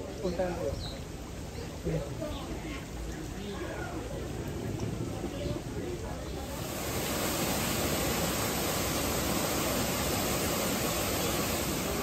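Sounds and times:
falling water rushing: 0:00.0 - 0:12.0.

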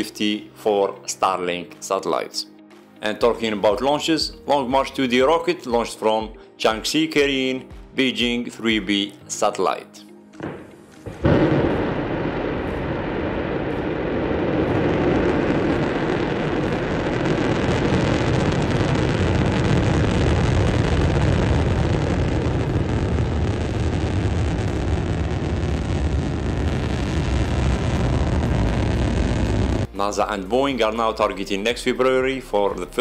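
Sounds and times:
rocket engines roaring: 0:11.1 - 0:29.9.

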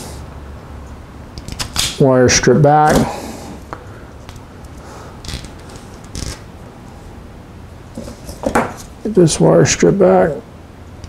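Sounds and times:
wires rustling: 0:02.7 - 0:07.2.

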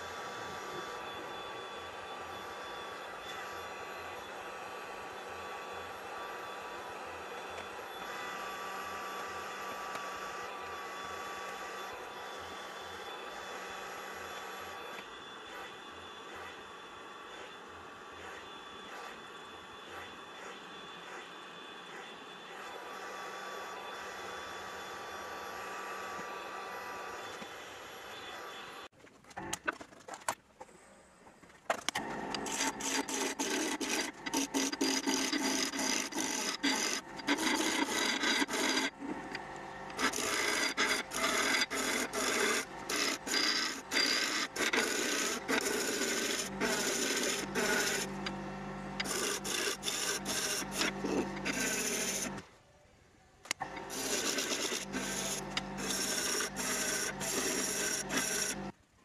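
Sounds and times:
gouge cutting wood on lathe: 0:32.0 - 0:52.4, 0:53.5 - 0:58.8.

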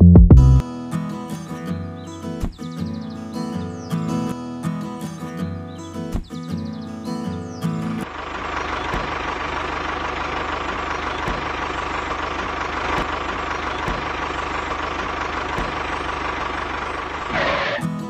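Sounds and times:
tractor engine knocking: 0:08.1 - 0:17.8.

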